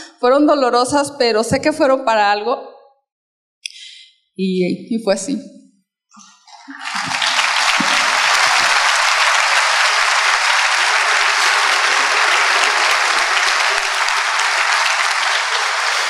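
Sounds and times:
audience applauding: 6.5s - 16.0s.

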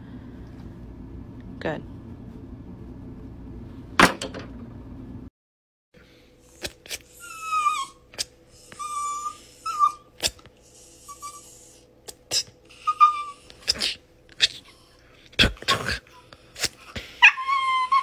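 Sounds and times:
dog whining: 6.5s - 15.0s, 16.0s - 18.0s.

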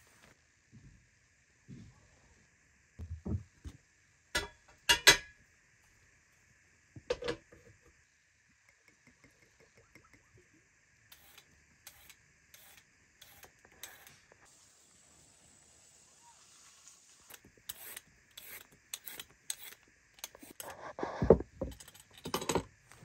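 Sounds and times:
metal pot clanking: 4.4s - 5.3s, 7.1s - 7.6s.

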